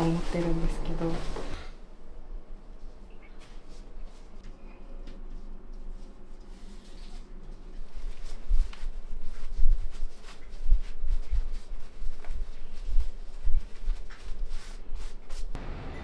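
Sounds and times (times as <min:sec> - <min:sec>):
fabric rustling: 0:00.0 - 0:01.7, 0:05.8 - 0:15.6.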